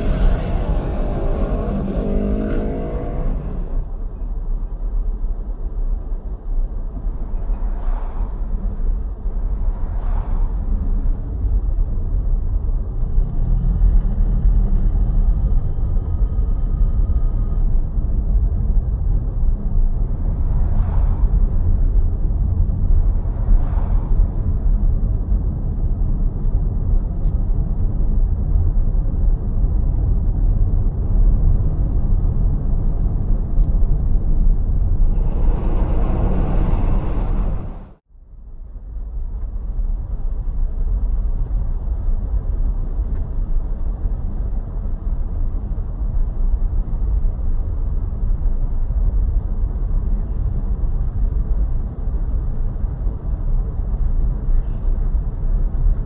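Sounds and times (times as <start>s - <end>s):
rushing swell: 0.0s - 3.9s, 31.0s - 38.0s
car road and wind rumble: 0.0s - 56.0s.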